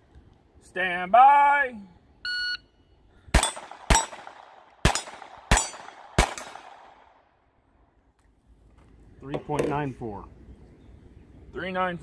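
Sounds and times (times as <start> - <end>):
pistol shots: 3.3 - 7.2
steel target plate ringing: 4.9 - 6.6.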